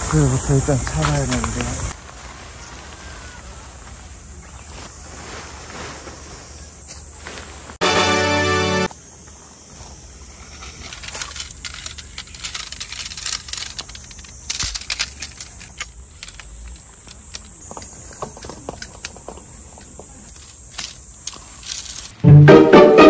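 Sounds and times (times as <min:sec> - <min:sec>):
tent poles clicking and clattering: 0:00.0 - 0:03.0, 0:10.4 - 0:22.2.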